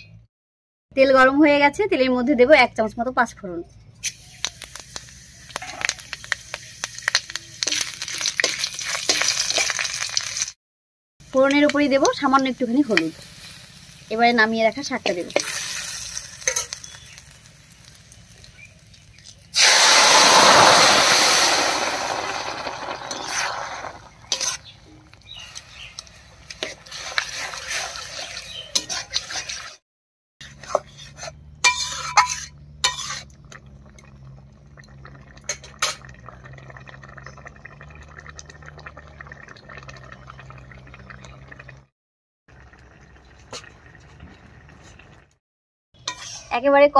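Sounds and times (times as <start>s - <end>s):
food hissing in hot oil: 4.0s - 10.5s, 12.8s - 18.6s, 19.5s - 24.3s
broth simmering with soft bubbling: 11.2s - 29.8s, 30.4s - 41.9s, 42.5s - 45.4s
spatula clinking and scraping in pan: 16.2s - 17.0s, 24.3s - 24.7s, 25.8s - 29.8s, 30.4s - 33.3s, 46.0s - 46.6s.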